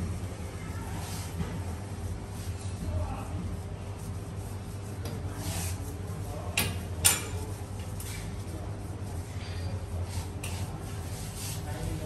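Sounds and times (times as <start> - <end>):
steady low hum: 0.0 - 12.0
scrubbing pad swishing on tiles: 10.0 - 12.0.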